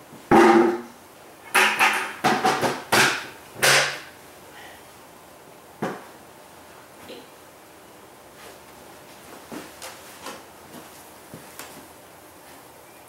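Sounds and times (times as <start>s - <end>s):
sharp hollow knocks: 0.3s - 0.9s, 1.5s - 4.1s.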